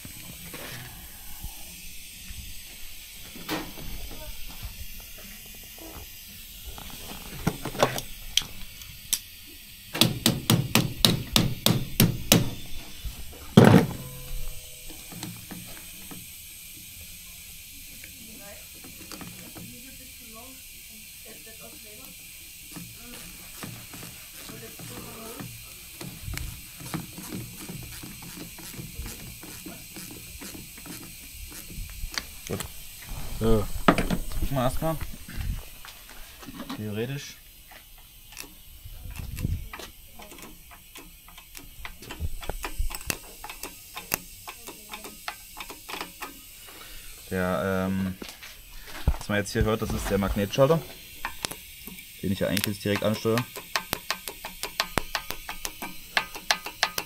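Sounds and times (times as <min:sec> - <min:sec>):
ratchet wrench clicking: 0:04.7 - 0:12.7, 0:13.9 - 0:33.1, 0:37.6 - 0:48.0, 0:50.2 - 0:57.0
hammer striking metal: 0:13.6 - 0:15.8.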